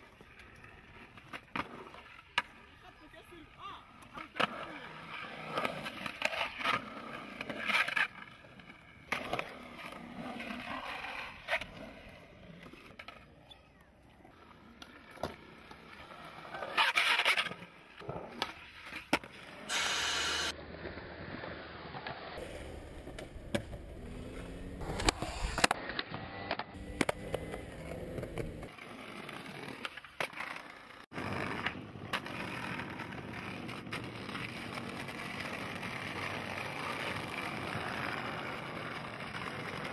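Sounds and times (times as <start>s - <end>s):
skateboard wheels rolling on concrete: 0.0s - 39.9s
skateboard clacks: 22.8s - 39.9s.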